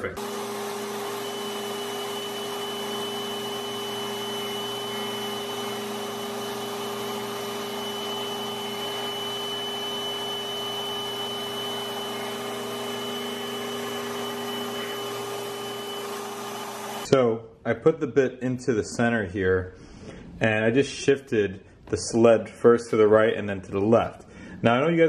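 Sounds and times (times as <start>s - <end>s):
router whining: 0.0s - 17.1s.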